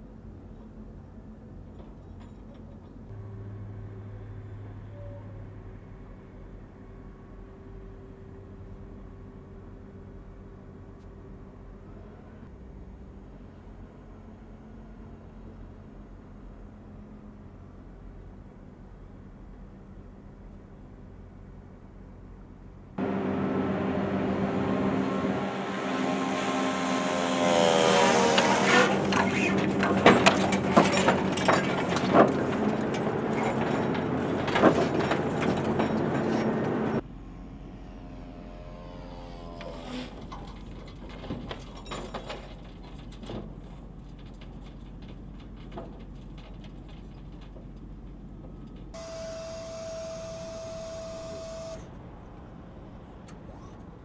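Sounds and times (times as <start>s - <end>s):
low hum: 3.1s - 17.6s, 21.1s - 27.8s, 36.9s - 40.6s, 49.0s - 52.4s
drone propeller engine buzzing: 23.0s - 29.8s, 37.0s - 40.4s, 49.0s - 51.9s
brief falling tone: 49.0s - 51.9s
steady high tone: 49.0s - 51.9s.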